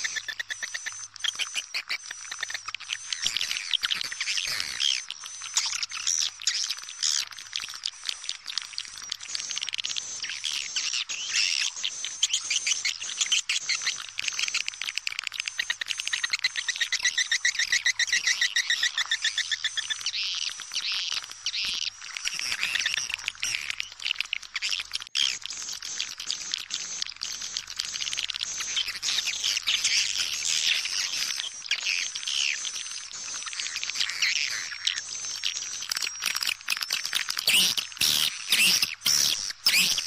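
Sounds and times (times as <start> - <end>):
birds twittering and chirping: 0.0 - 40.0
fast buzzing trill: 35.9 - 40.0.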